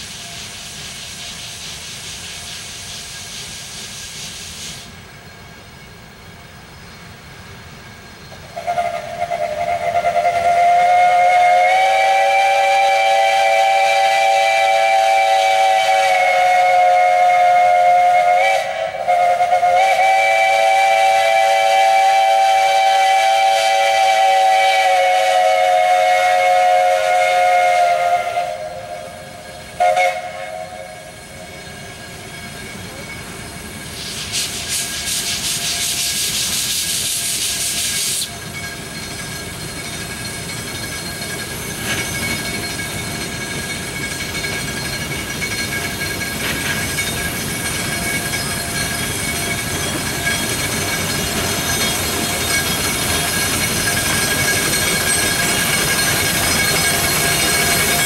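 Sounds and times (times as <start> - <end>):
steam hissing: 0.0 - 58.0
steam whistle chord: 8.5 - 31.5.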